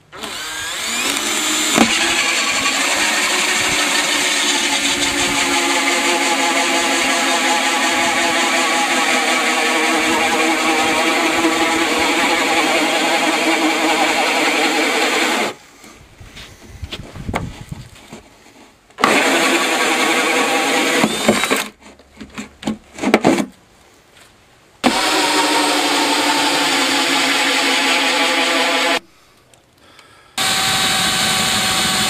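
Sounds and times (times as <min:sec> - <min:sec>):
cordless drill with hole saw: 0:00.0 - 0:15.6, 0:19.0 - 0:21.8, 0:24.8 - 0:29.0, 0:30.4 - 0:32.0.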